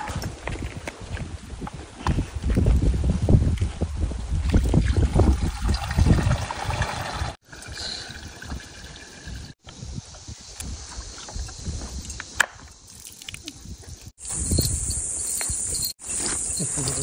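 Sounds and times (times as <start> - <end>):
liquid pouring into plastic bucket: 4.5 - 9.5.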